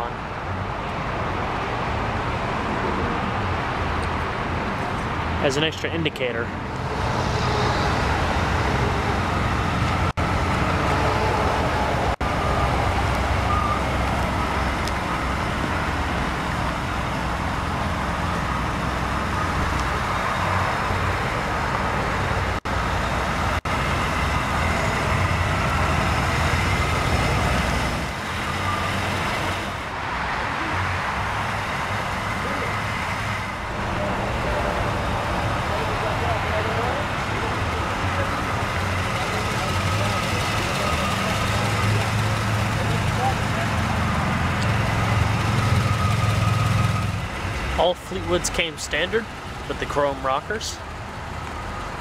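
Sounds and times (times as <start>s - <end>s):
car engine idling: 30.6s - 52.0s.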